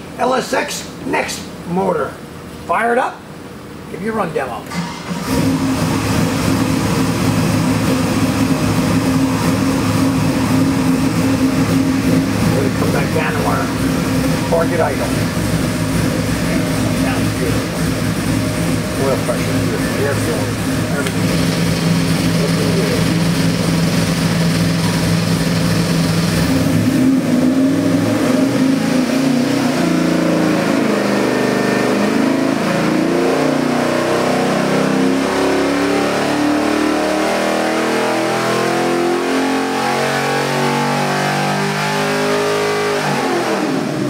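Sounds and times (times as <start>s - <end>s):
engine revving on a dynamometer: 4.7s - 44.0s.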